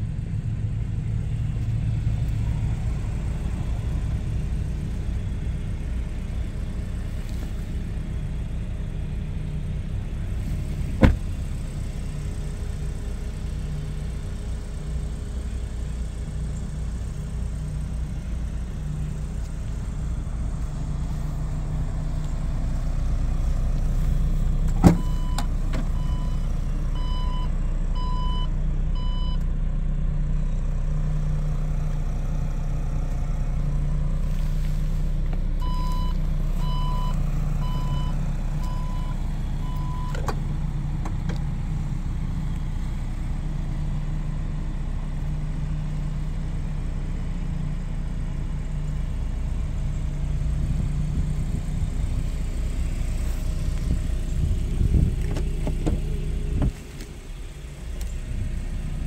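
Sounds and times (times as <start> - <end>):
car engine humming: 0.0 - 59.0
parking sensor beeps: 24.8 - 29.4, 35.6 - 40.3.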